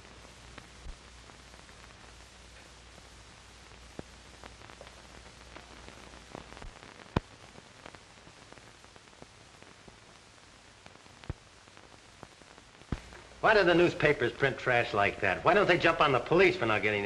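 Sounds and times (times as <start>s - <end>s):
film soundtrack hiss and crackle: 0.0s - 17.0s
sharp pop: 12.8s - 13.2s.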